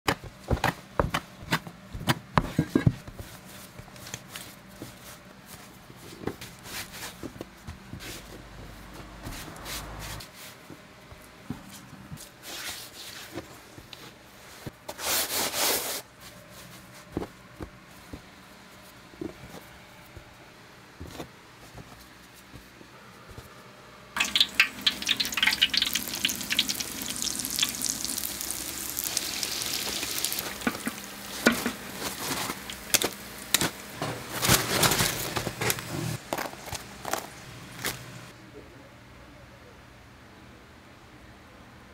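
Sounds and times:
doughnuts sizzling in hot oil: 24.2s - 31.9s.

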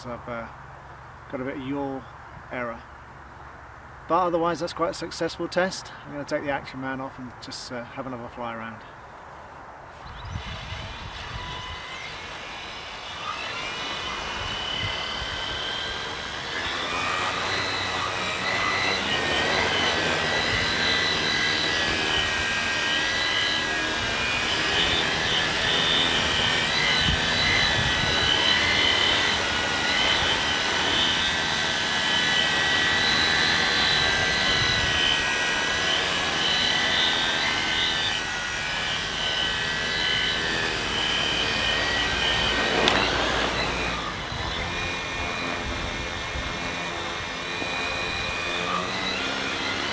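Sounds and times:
drone motors whining: 9.9s - 49.9s.

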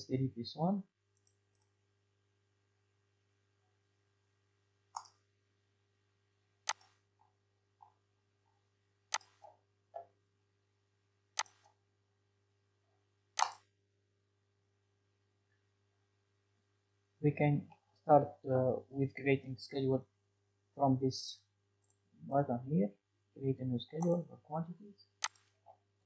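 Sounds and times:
computer mouse clicking: 1.2s - 1.7s, 4.9s - 5.2s, 6.7s - 7.0s, 9.1s - 9.6s, 11.4s - 11.8s, 13.4s - 13.7s, 25.2s - 25.8s.

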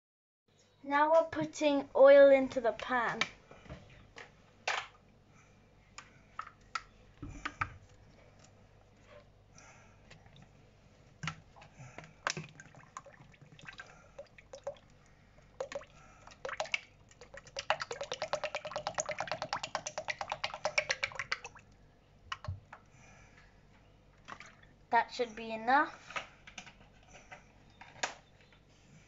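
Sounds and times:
oil drips and clicks: 12.0s - 22.9s
oil glugging from bottle: 12.3s - 14.9s.

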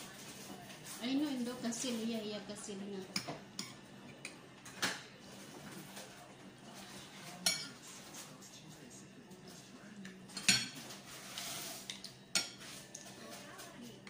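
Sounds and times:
cutlery clinking against dishes: 3.1s - 5.1s, 7.2s - 8.3s, 10.0s - 13.5s.

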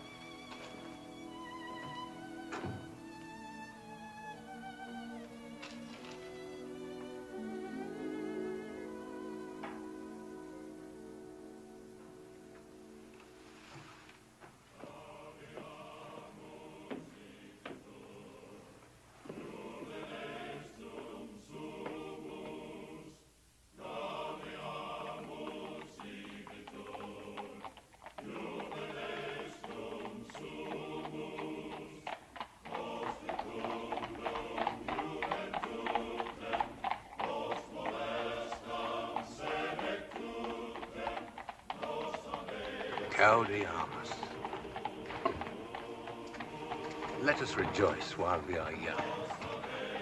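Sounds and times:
horse hooves clip-clopping: 0.0s - 8.2s, 24.4s - 50.0s
chorus singing: 0.0s - 13.9s, 14.5s - 50.0s.

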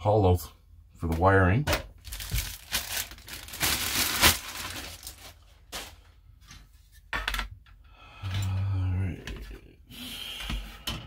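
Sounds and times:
plastic bag crinkling: 2.0s - 6.1s.

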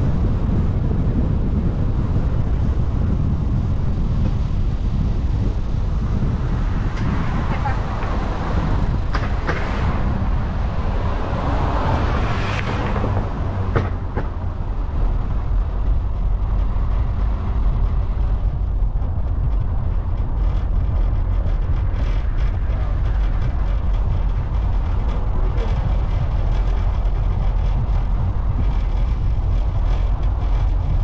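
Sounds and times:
car road and engine rumble: 0.0s - 31.0s.

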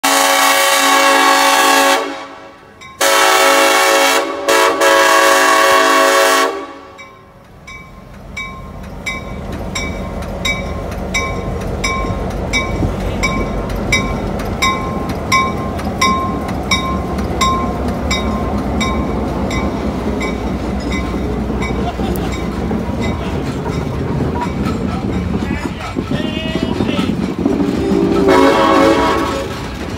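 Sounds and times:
train air horn blasts: 0.0s - 7.0s, 27.8s - 29.6s
passing train rumble: 0.0s - 29.9s
crossing signal bell ringing: 2.7s - 3.3s, 6.9s - 25.4s.

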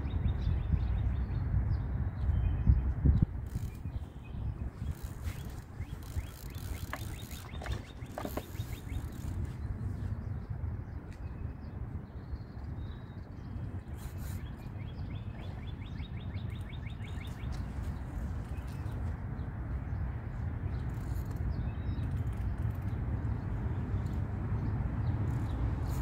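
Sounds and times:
wind rumbling on microphone: 0.0s - 26.0s
fishing reel clicking: 3.4s - 3.8s, 4.9s - 9.5s.

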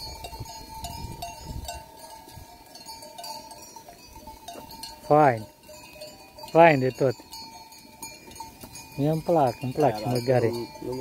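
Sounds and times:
sheep bells clinking: 0.0s - 11.0s.

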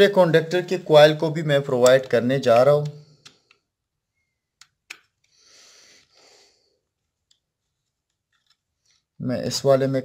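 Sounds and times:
soft breaths: 5.2s - 7.9s.

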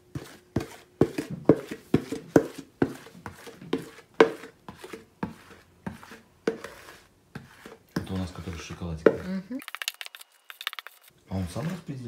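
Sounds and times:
batter scraped from bowl: 2.5s - 12.0s.

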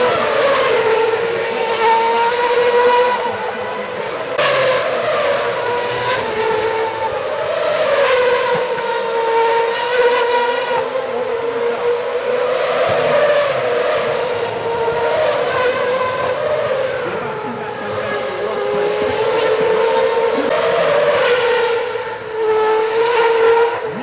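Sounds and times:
racing car engines at high revs: 0.0s - 24.0s.

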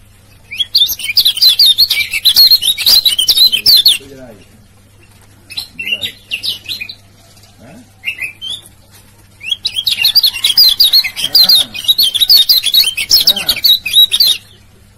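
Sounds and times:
bird fast high chirping: 0.4s - 4.2s, 9.4s - 14.6s.

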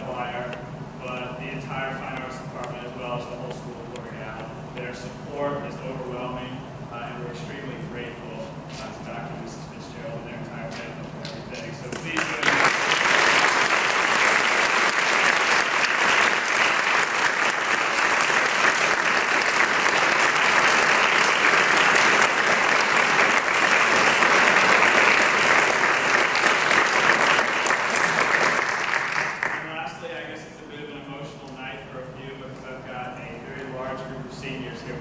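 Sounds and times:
crowd applauding: 11.9s - 29.7s.

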